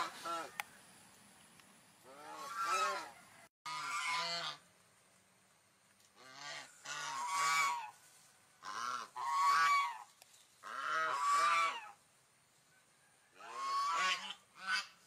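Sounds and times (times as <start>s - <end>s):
swan honking: 2.1s - 4.6s, 6.2s - 8.0s, 8.6s - 12.0s, 13.4s - 15.0s.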